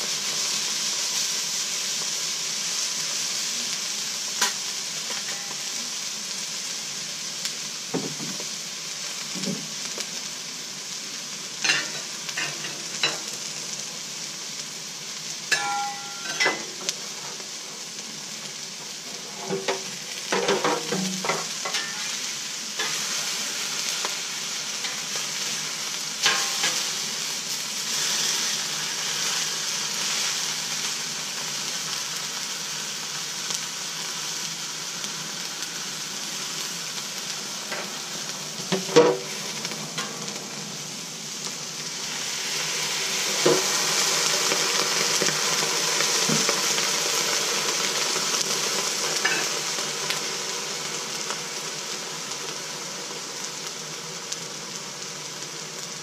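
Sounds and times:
food sizzling on griddle: 0.0 - 56.0
metal utensils scraping steel: 15.5 - 16.8, 20.4 - 22.2, 26.2 - 26.8.

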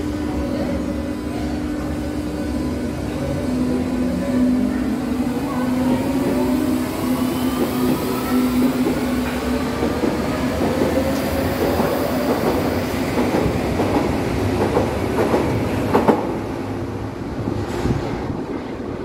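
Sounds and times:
train wheels clattering on rails: 7.5 - 16.5.

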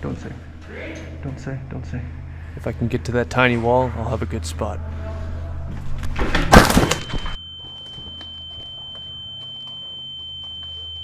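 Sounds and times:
high-pitched ringing tone: 6.8 - 11.0.

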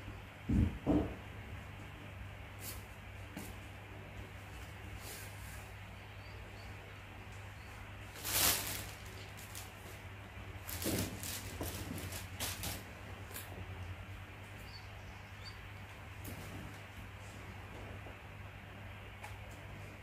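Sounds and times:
low steady hum: 0.0 - 20.0
plastic and paper packaging rustling: 8.1 - 10.0, 10.6 - 13.5.

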